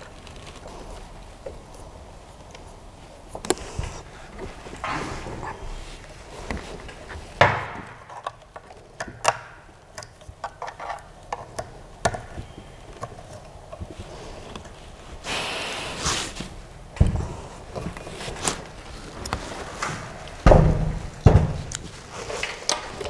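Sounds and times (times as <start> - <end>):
rustling and scraping: 0.0 - 23.0
metal parts knocking and clicking: 7.5 - 13.4
heavy thump: 20.4 - 21.7.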